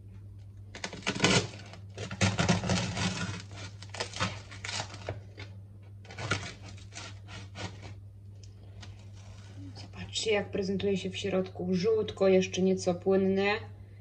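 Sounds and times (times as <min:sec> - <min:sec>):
knife sawing crusty bread: 0:01.1 - 0:04.9, 0:06.1 - 0:08.0.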